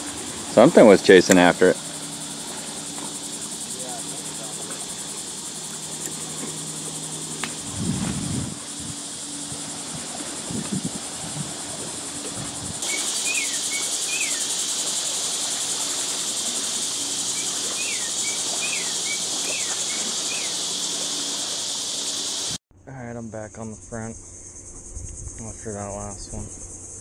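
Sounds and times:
insect chorus buzzing: 0:00.0 - 0:22.6, 0:23.4 - 0:27.0
bird chirping: 0:12.8 - 0:14.6, 0:17.3 - 0:20.7.

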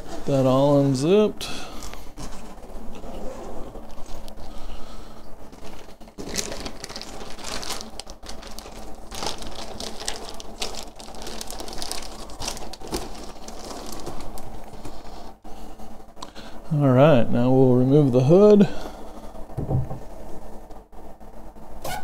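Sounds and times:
fabric flap rustling and crinkling: 0:05.5 - 0:15.1.

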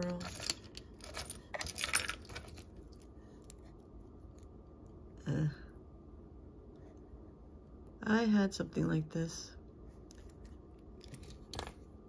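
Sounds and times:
metal jewelry clinking: 0:00.0 - 0:03.6, 0:10.1 - 0:11.8.

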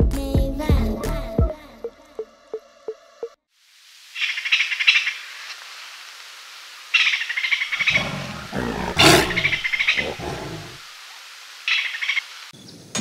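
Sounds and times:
big cat roaring: 0:07.8 - 0:10.8.

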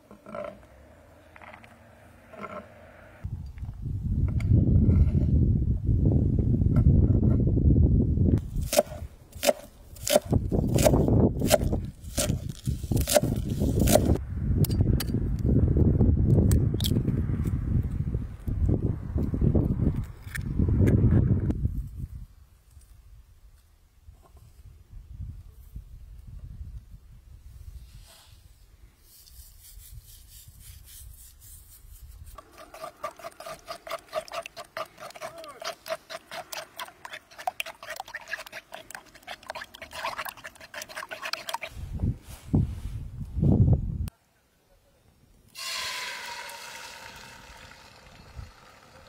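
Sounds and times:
metal spoon scraping wooden bowl: 0:32.3 - 0:41.7.

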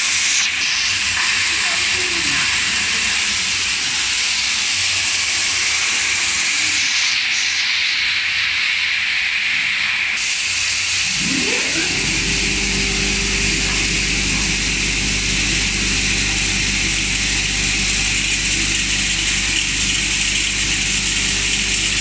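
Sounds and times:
machine rushing hiss: 0:00.0 - 0:22.0
low motor hum: 0:10.8 - 0:22.0.

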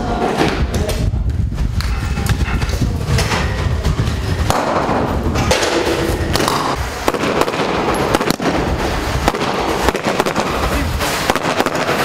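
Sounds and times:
rifle shots: 0:04.5 - 0:12.0.

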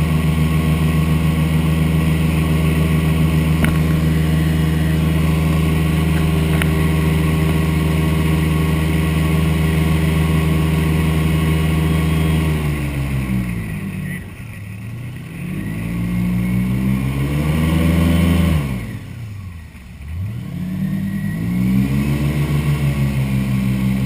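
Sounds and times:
airboat engine and propeller drone: 0:00.0 - 0:14.8.

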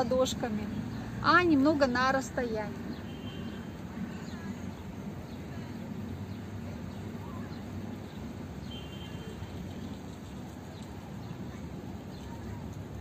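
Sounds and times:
distant traffic rumble: 0:00.0 - 0:13.0.

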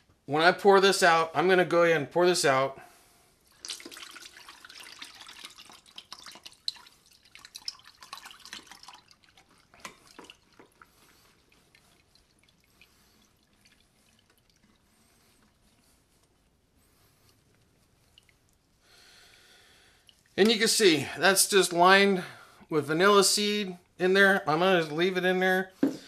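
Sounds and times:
drips and soft knocks: 0:03.5 - 0:16.4, 0:17.2 - 0:18.7
liquid pouring and splashing: 0:03.5 - 0:21.2.

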